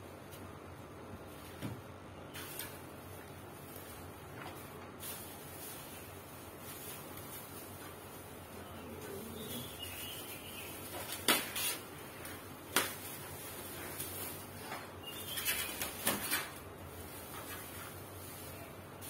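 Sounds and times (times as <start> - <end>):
plastic packaging crinkling: 2.4 - 19.0.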